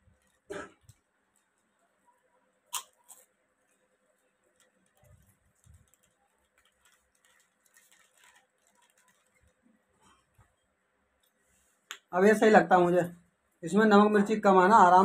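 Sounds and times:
crunchy snack being eaten: 2.7s - 3.8s.

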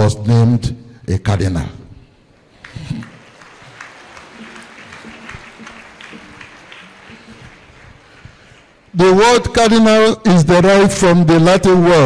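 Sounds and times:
crowd clapping: 2.3s - 9.0s.

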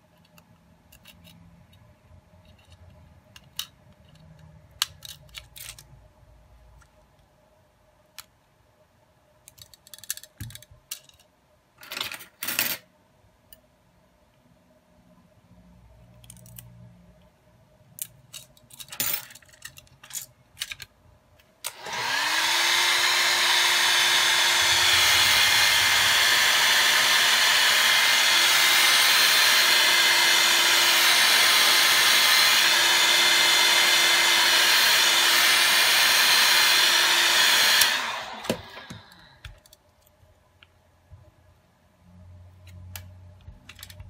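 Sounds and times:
hot-air blower running: 21.6s - 39.5s.

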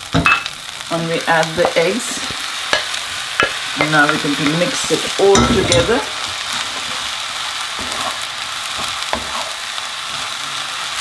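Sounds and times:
food sizzling in a frying pan: 0.0s - 11.0s
spatula knocking pan: 1.6s - 4.3s, 5.2s - 6.1s.

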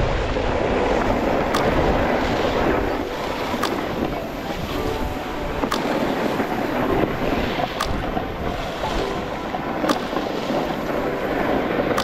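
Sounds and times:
wind rushing over microphone: 0.0s - 12.0s
short sharp clicks: 1.5s - 1.8s, 7.8s - 8.0s.

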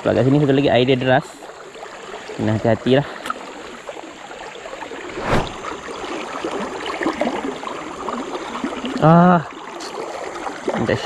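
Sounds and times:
fast river current rushing: 3.4s - 11.0s.

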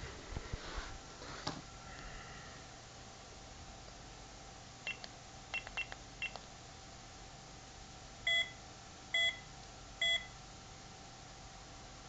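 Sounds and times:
keypad beeps: 4.9s - 6.4s, 9.2s - 10.3s.

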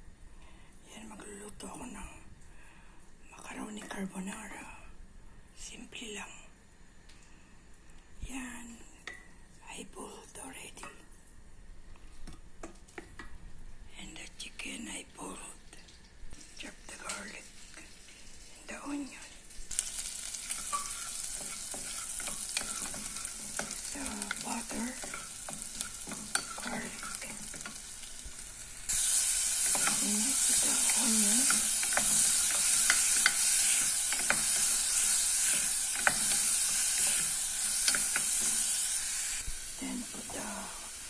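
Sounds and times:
garlic sizzling in oil: 15.9s - 41.0s
wooden spoon scraping a pan: 19.7s - 38.9s.

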